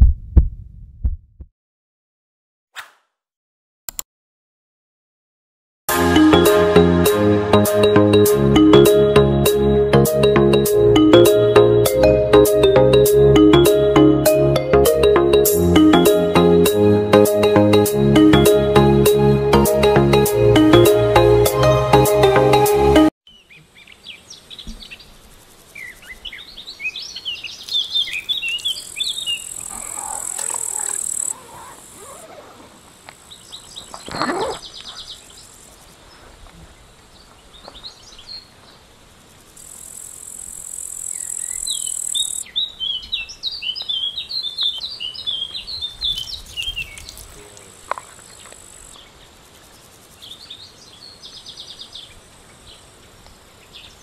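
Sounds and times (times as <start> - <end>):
birds chirping: 25.8 - 38.9, 41.0 - 49.2
insect buzzing: 28.2 - 36.0, 39.1 - 42.4.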